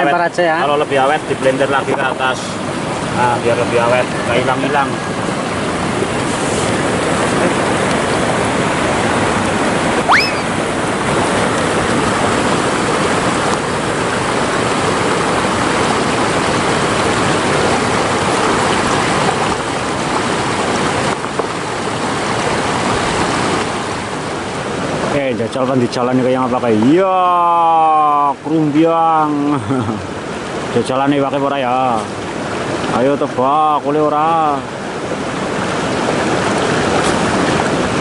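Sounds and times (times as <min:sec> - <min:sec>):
river water flowing: 0:00.0 - 0:38.0
short rising whistle: 0:10.1 - 0:10.6.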